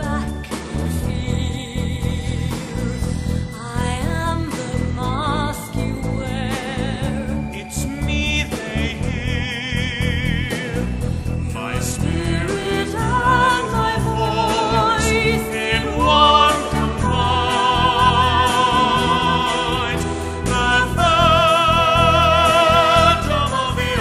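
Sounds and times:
soprano singing with vibrato: 11.6 - 24.0
orchestra playing: 12.5 - 24.0.

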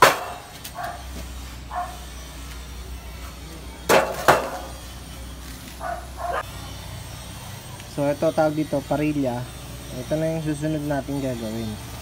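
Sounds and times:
sharp metal knocks: 0.0 - 0.4, 3.9 - 4.7.

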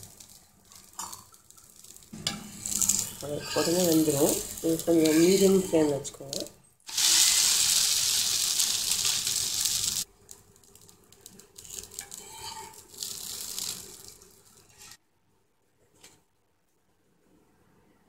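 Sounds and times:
batter sizzling on a hot griddle: 0.0 - 15.0
metal spatula scraping: 0.2 - 6.3, 11.6 - 15.0.

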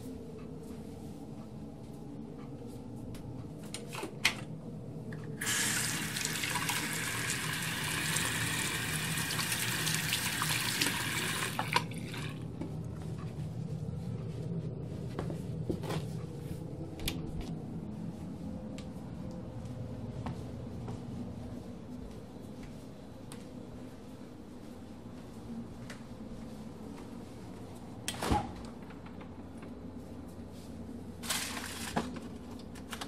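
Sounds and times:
steady low hum: 0.0 - 5.4, 11.6 - 33.0
tap water running into sink: 5.4 - 12.4.

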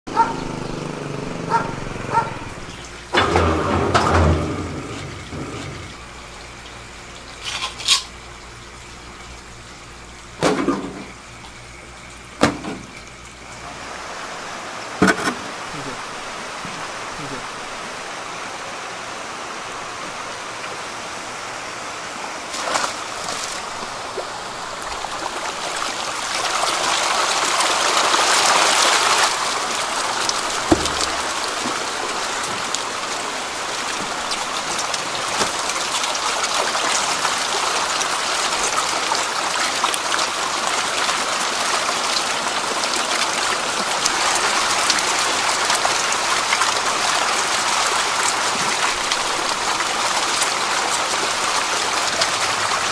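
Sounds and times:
thump: 12.4 - 12.9, 30.7 - 31.1
eels splashing in water: 22.5 - 52.9.

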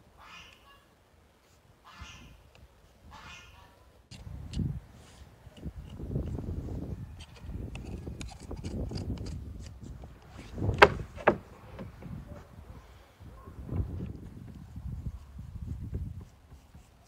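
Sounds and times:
knife cutting through ribs: 7.2 - 9.8
loud knocks on wooden board: 10.7 - 11.9.

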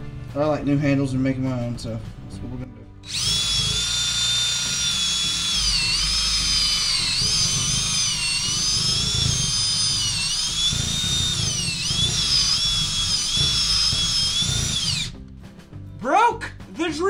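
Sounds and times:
cordless drill boring into wood: 3.1 - 15.2.

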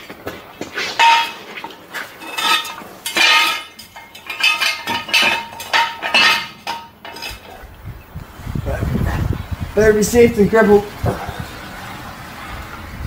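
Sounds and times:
metal jack stand clanking: 0.9 - 7.6.

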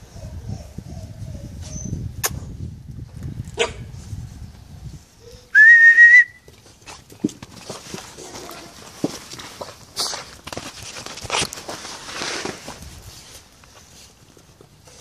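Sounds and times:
person whistling: 5.5 - 6.5.

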